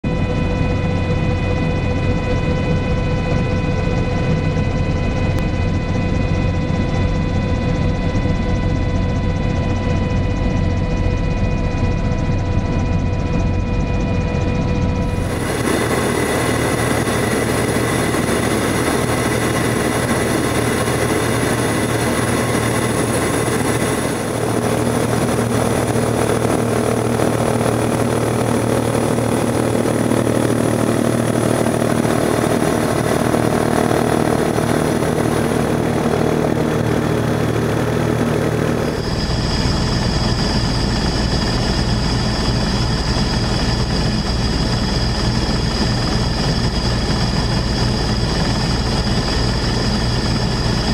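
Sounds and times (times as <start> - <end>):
aircraft propellers humming: 0.0 - 50.9
high whine: 12.8 - 50.9.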